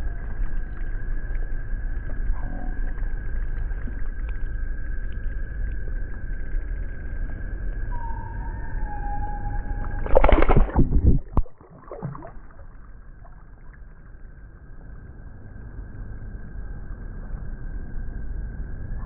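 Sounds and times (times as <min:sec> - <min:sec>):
fish splashing in water: 0:09.6 - 0:13.7
water lapping: 0:10.0 - 0:14.1.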